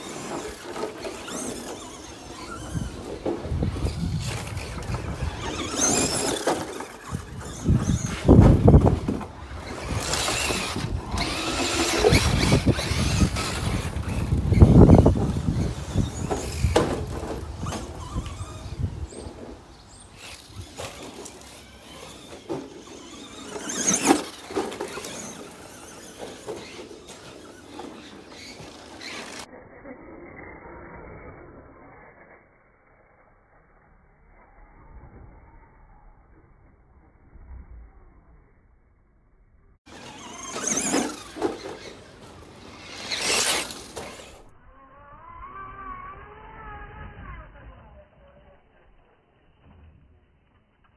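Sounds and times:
electric motors whining: 0.0s - 29.5s, 39.9s - 44.6s
tyres scrabbling on dirt: 0.0s - 29.5s, 39.9s - 44.5s
electric motor whine: 9.6s - 19.0s.

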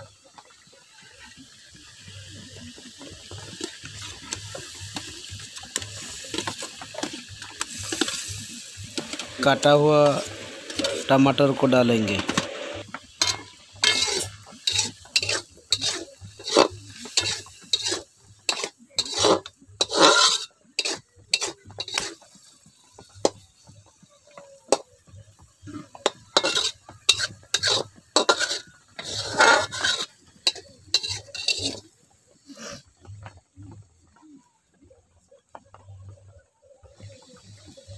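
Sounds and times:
metal spatula scraping metal pan: 3.2s - 22.3s, 25.8s - 31.9s.

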